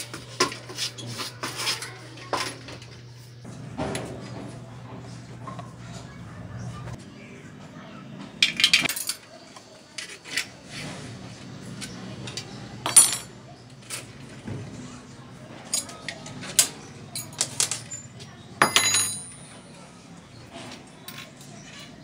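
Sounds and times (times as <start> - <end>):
metallic clinks and knocks: 15.7 - 19.6.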